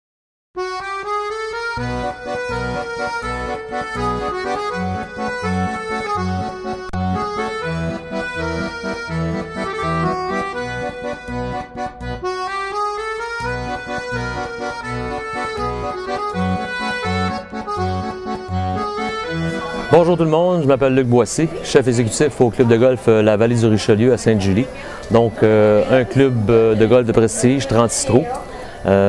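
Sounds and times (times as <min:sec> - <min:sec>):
regular bass beat: 0:00.6 - 0:19.7
sustained melody notes: 0:00.6 - 0:29.0.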